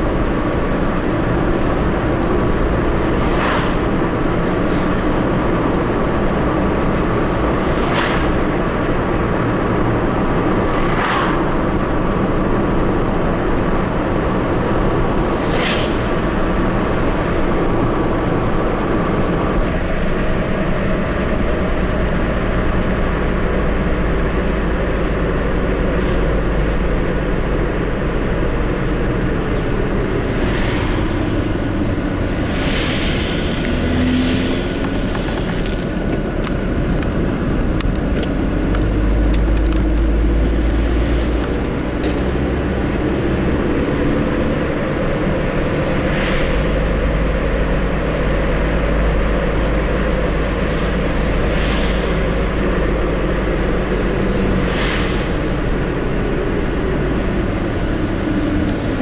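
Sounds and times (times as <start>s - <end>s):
passing cars whooshing: 0.0s - 24.7s, 25.3s - 59.0s
car engine and tyre noise: 0.0s - 59.0s.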